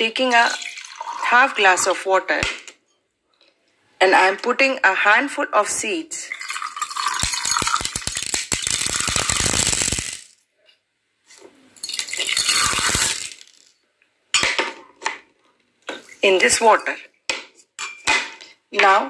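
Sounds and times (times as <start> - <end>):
seeds pattering into glass of water: 6.3 - 10.4, 11.8 - 13.7
glass clinks: 11.8 - 13.1.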